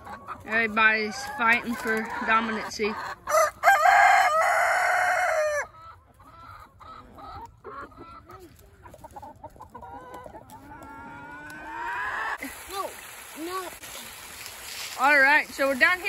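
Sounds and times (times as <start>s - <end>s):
chickens clucking: 0.0s - 13.1s
rooster crowing: 3.3s - 5.7s.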